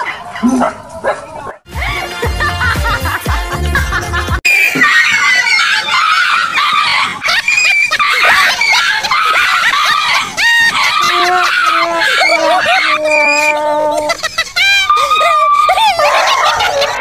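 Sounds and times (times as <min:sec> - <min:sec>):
music: 0:01.7 - 0:04.4
people screaming: 0:04.5 - 0:17.0.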